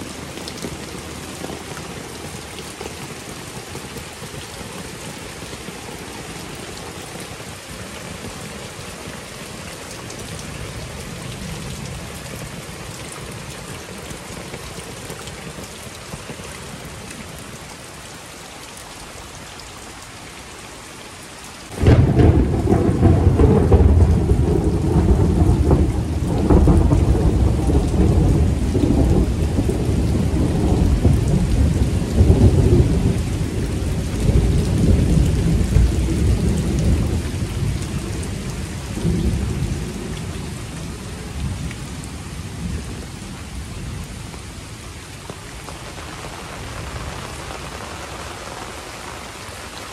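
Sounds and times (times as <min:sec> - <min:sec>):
heavy rain: 0:00.0 - 0:49.9
thunder clap and rumble: 0:21.7 - 0:44.2.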